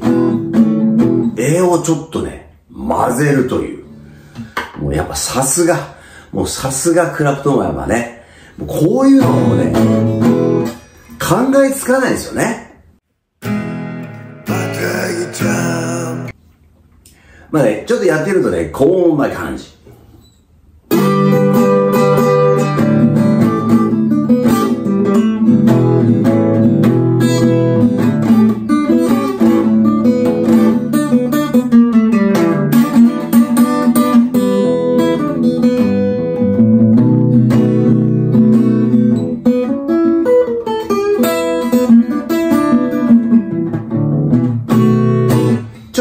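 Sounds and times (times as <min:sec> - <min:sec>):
acoustic guitar blues playing: 0:00.0 - 0:01.9, 0:03.3 - 0:04.8, 0:08.3 - 0:11.3, 0:13.4 - 0:16.4, 0:20.9 - 0:46.0.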